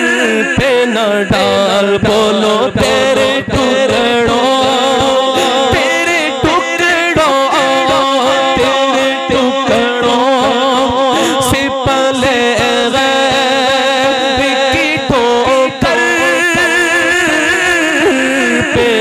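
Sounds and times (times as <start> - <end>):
man singing into a microphone: 0.0 - 19.0
low thumps keeping a beat: 0.6 - 16.9.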